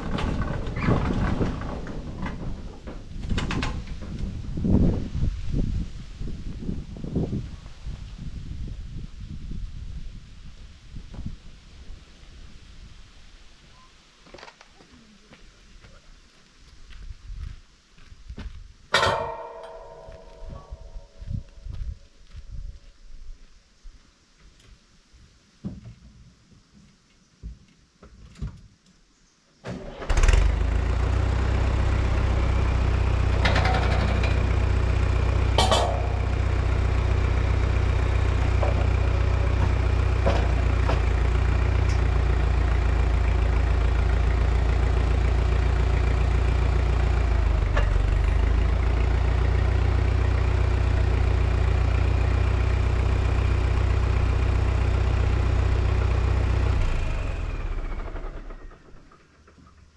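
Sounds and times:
tractor engine running: 0.0s - 6.5s, 18.9s - 22.4s, 29.7s - 59.9s
sharp knocks: 19.0s - 21.2s.

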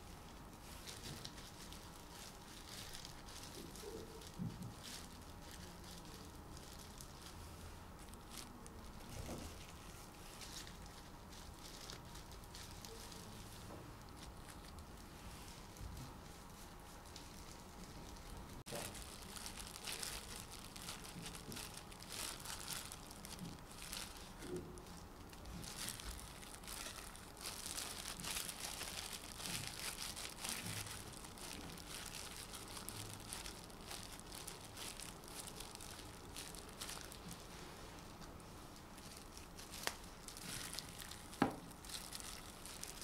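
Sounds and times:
dough squishing: 0.0s - 43.0s
plastic gloves crinkling: 0.0s - 43.0s.

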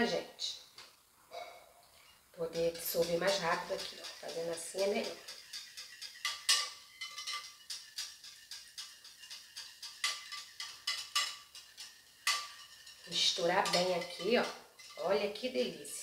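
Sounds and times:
whisk clinking against glass bowl: 2.5s - 15.0s.

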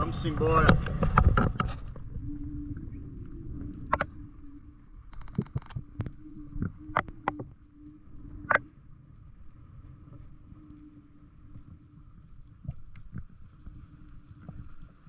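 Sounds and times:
low underwater hum: 0.0s - 15.0s
sharp clicks and knocks: 5.1s - 6.1s.

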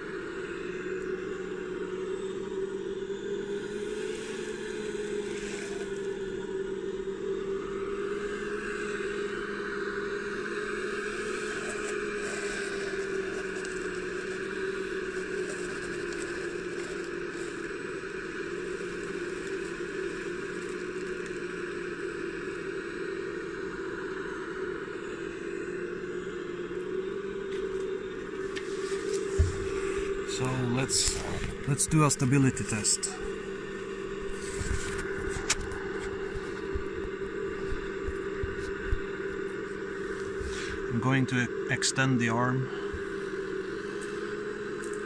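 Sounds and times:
model excavator motors whining: 0.0s - 45.0s.

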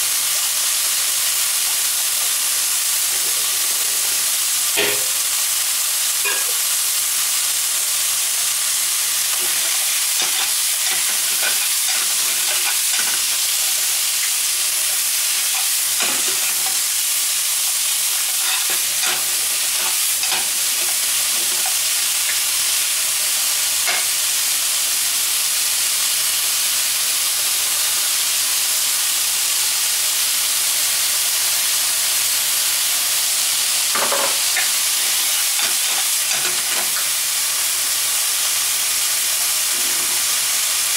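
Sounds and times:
food sizzling in a frying pan: 0.0s - 40.9s
wooden spatula scraping a pan: 9.3s - 14.0s, 18.1s - 21.8s.

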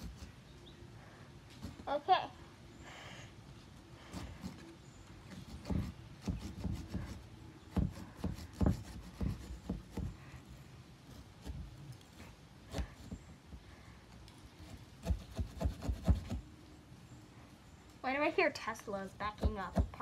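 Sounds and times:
small saw sawing pumpkin: 0.0s - 0.4s, 1.5s - 2.0s, 4.0s - 13.3s, 14.6s - 16.4s.

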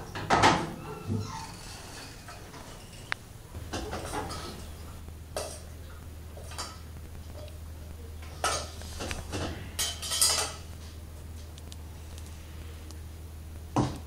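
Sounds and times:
steady low hum: 0.0s - 14.0s
metal pot and cutlery clattering: 3.7s - 4.6s, 8.4s - 10.7s.

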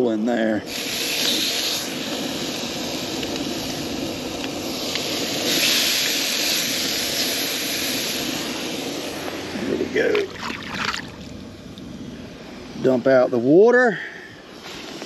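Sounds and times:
oil sizzling in a frying pan: 0.7s - 9.5s.

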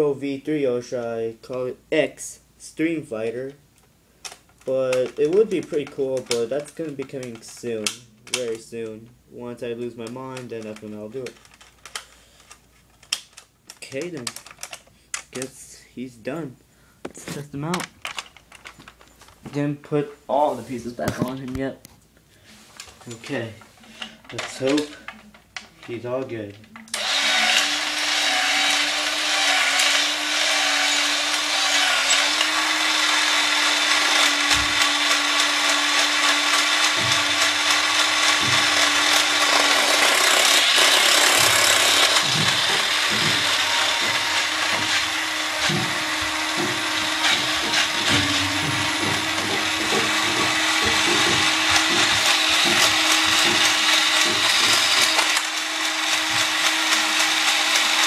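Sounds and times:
toy robot motor whirring: 26.9s - 58.0s.

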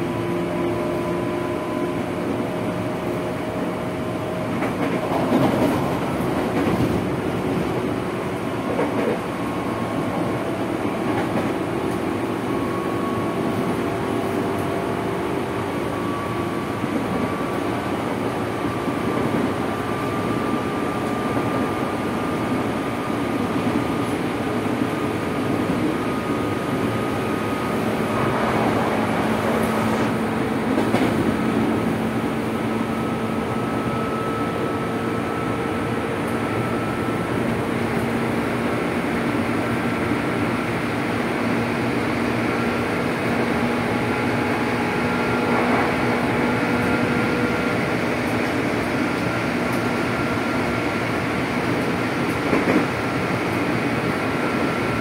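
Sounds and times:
wheels rumbling on rail: 0.0s - 55.0s
train motor whine: 25.7s - 37.6s, 43.6s - 50.6s.

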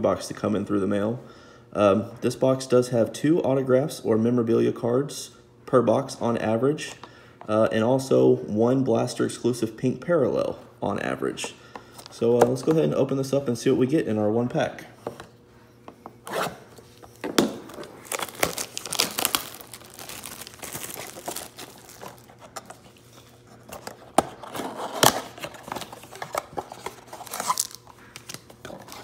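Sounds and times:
plastic shrink wrap crinkling and tearing: 17.4s - 22.8s, 23.8s - 29.0s.

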